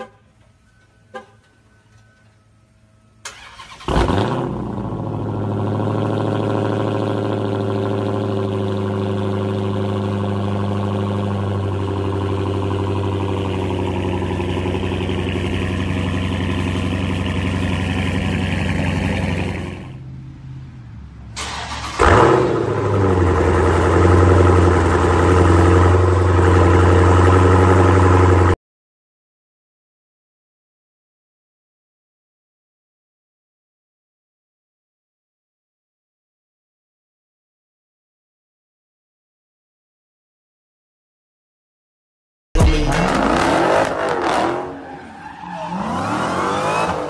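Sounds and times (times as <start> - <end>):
car engine starting and idling: 0.3 - 20.1, 21.2 - 28.6, 42.6 - 47.0.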